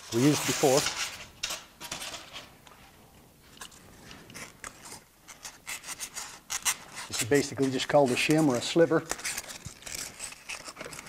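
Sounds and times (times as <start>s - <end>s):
styrofoam crunching and scraping: 0.0s - 1.1s, 5.4s - 11.0s.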